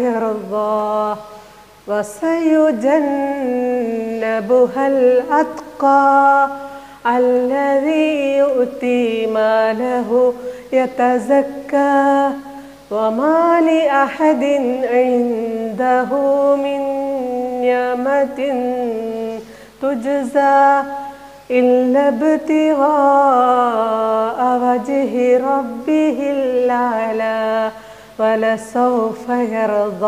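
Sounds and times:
woman chanting melodically: 0:00.0 - 0:30.0.

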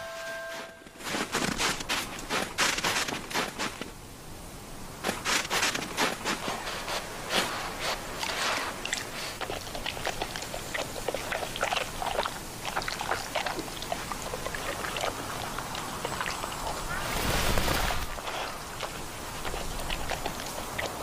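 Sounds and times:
snow crunching under hooves: 0:00.5 - 0:04.0, 0:05.0 - 0:09.4.

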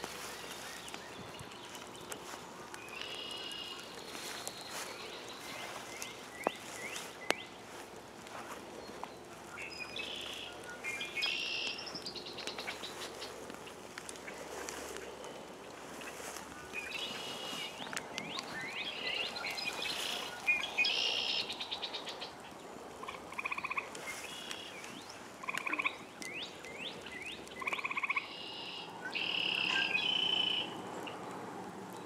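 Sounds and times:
frogs calling: 0:15.8 - 0:22.4, 0:23.0 - 0:31.2.

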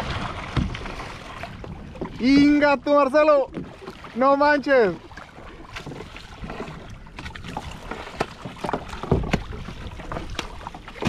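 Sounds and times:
waves slapping kayak hull: 0:00.0 - 0:11.0
knocks on hull: 0:00.3 - 0:02.7, 0:05.7 - 0:11.0.

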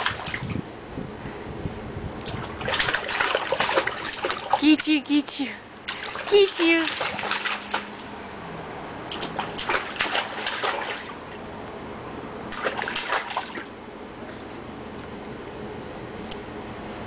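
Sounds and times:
hands splashing water: 0:02.2 - 0:04.6, 0:05.9 - 0:08.1, 0:09.1 - 0:11.4, 0:12.5 - 0:13.7.

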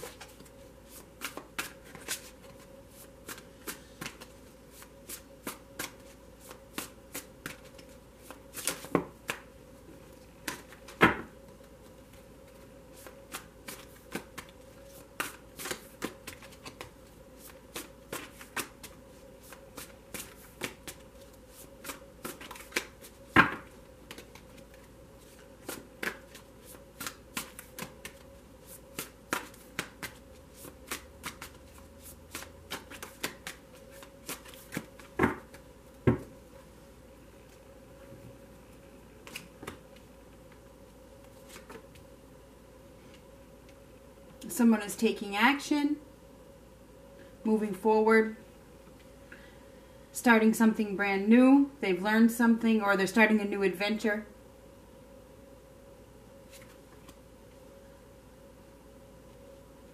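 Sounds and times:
cards being shuffled: 0:00.0 - 0:09.5, 0:10.4 - 0:35.6, 0:39.2 - 0:40.6, 0:41.2 - 0:42.1, 0:56.5 - 0:57.2.

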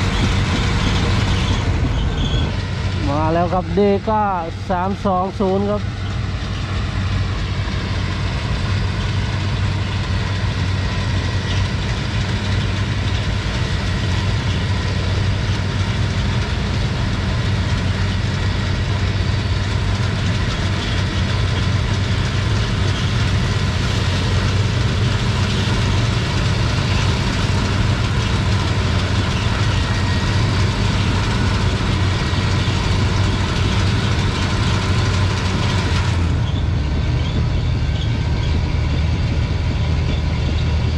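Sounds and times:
heavy diesel engines under load: 0:00.0 - 0:40.9.

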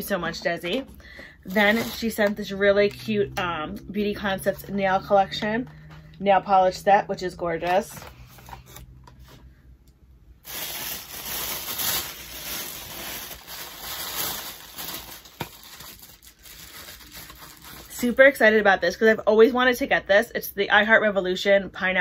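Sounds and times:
gift packaging crinkling: 0:01.4 - 0:03.0, 0:10.4 - 0:18.1.

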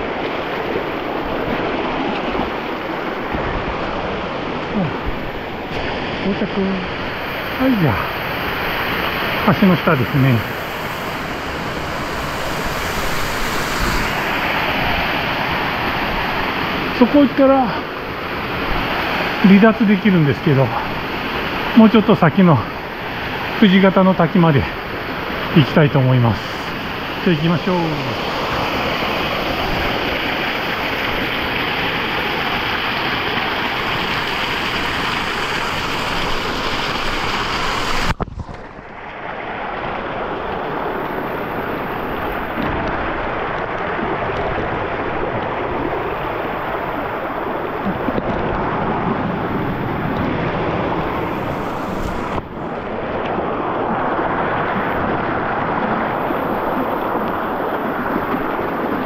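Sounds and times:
mountain stream flowing: 0:00.0 - 0:59.0.

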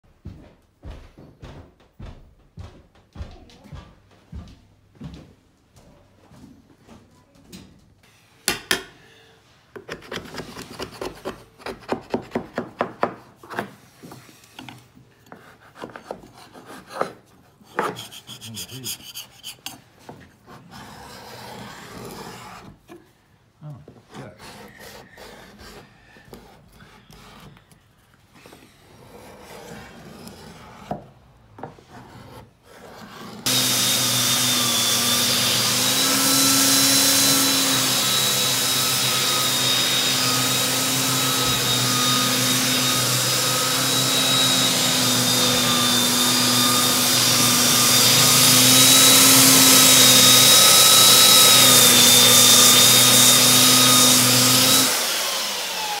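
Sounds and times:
faint scraping and knocks: 0:13.4 - 0:33.5
belt sander sanding wood: 0:17.7 - 0:20.0, 0:33.4 - 0:56.0.

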